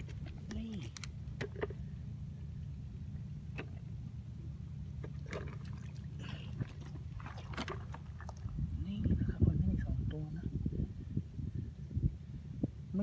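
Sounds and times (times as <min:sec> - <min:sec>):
steady low rumble: 0:00.0 - 0:13.0
water trickling at shore: 0:05.0 - 0:09.2.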